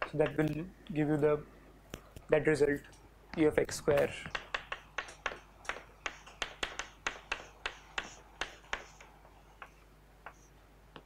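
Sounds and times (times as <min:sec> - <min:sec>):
chalk tapping on blackboard: 0:04.0 - 0:11.0.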